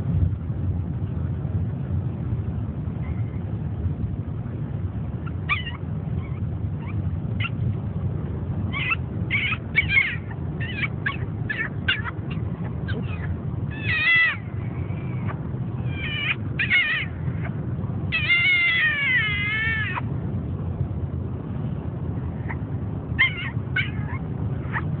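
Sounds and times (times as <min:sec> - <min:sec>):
car road rumble: 0:00.0 - 0:25.0
dog whining: 0:05.2 - 0:07.6, 0:08.7 - 0:20.1, 0:23.2 - 0:25.0.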